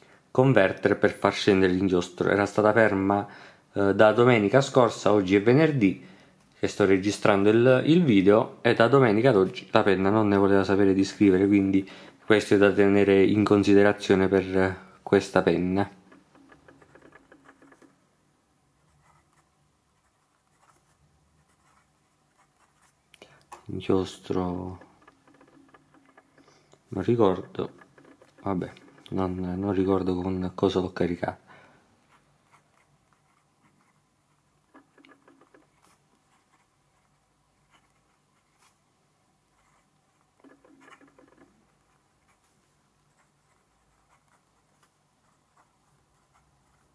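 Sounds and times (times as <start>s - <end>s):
fountain pen scratching on paper: 16.0s - 18.0s, 18.7s - 26.4s, 27.1s - 29.4s, 32.0s - 38.8s, 39.4s - 46.9s.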